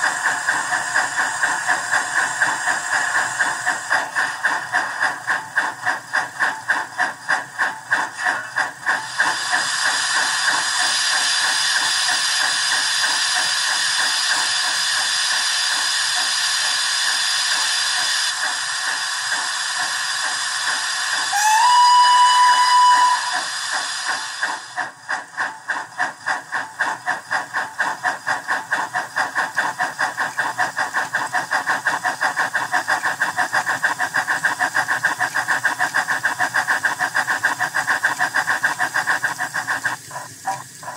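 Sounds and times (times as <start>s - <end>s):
steady steam hiss: 0.0s - 40.9s
steam chuffing: 0.0s - 40.9s
steam whistle: 21.3s - 23.6s.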